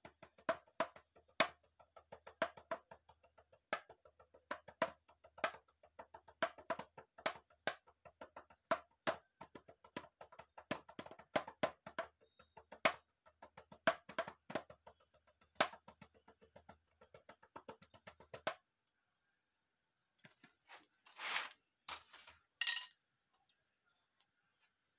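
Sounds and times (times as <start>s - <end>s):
plastic percussion struck with stick: 0.0s - 18.6s.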